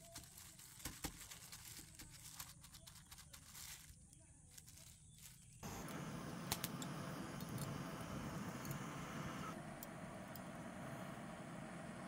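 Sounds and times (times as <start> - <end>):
butane torch flame: 5.6 - 12.0.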